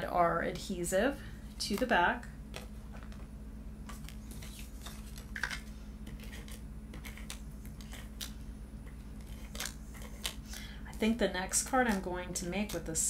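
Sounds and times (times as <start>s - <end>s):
steady low hum: 0.0s - 13.0s
cardstock clicks and scrapes: 3.9s - 8.4s, 9.2s - 10.6s.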